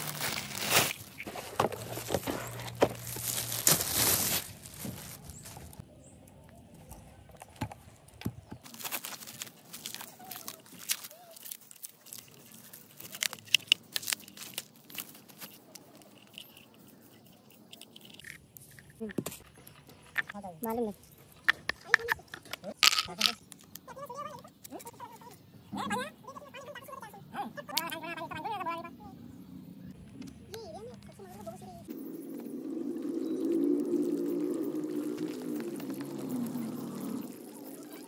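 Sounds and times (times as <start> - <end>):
handling rustling and scraping: 0.0 - 5.8, 6.9 - 20.4.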